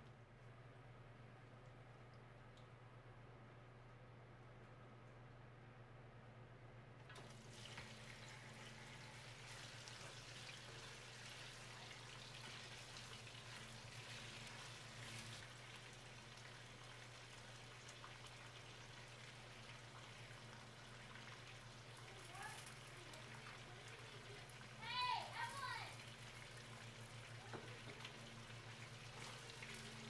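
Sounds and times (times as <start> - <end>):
meat sizzling in hot oil: 7.4 - 23.4.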